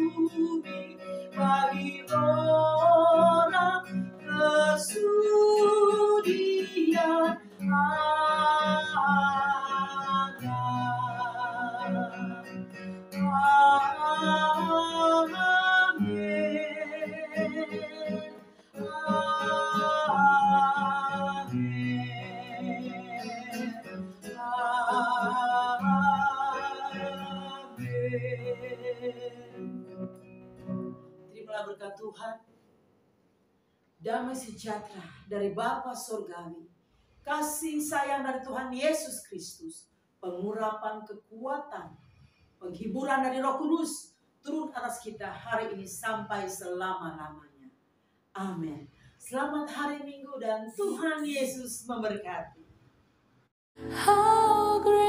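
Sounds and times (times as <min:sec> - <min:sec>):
woman singing with vibrato: 0:00.0 - 0:29.7, 0:53.8 - 0:55.0
strummed classical guitar: 0:00.0 - 0:31.9
singer breathing: 0:18.4 - 0:18.8, 0:47.9 - 0:48.3, 0:48.9 - 0:49.2.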